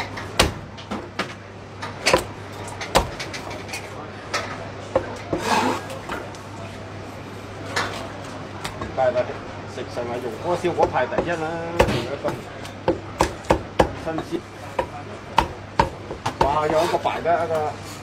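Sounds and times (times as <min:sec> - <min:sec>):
cleaver chopping on wooden block: 0:02.9 - 0:03.3, 0:10.8 - 0:16.8.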